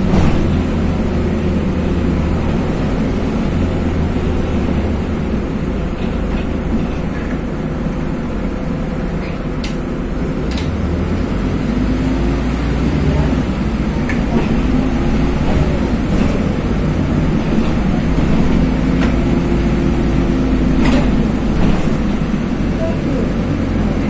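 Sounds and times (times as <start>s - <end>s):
bus engine and road drone: 0.0s - 24.0s
faint cabin rattles: 13.9s - 24.0s.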